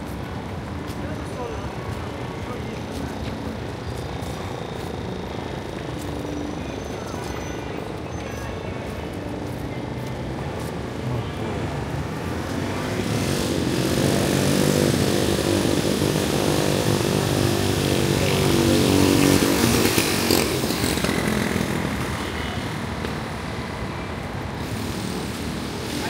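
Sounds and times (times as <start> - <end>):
vehicle engine passing by: 11.5 - 22.4.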